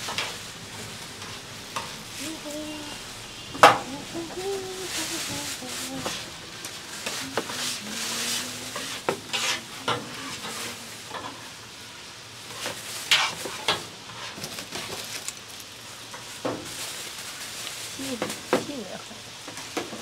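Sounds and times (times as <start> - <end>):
noodles sizzling on a griddle: 0.0 - 20.0
metal spatula scraping hot plate: 7.0 - 11.5, 12.5 - 14.4.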